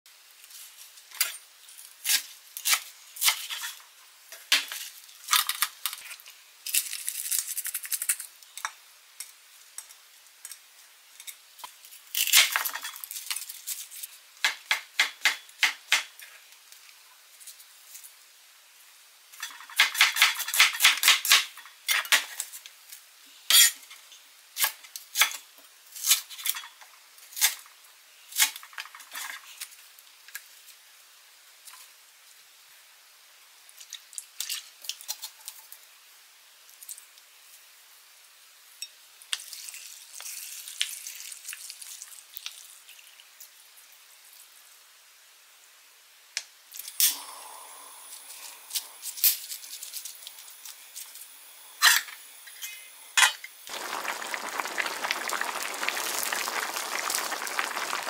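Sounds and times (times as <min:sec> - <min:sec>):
vegetables rustling: 0:53.7 - 0:58.0.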